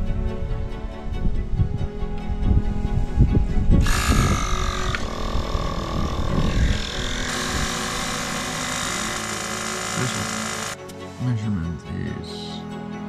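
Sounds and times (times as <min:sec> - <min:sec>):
air compressor running: 0:03.8 - 0:10.8.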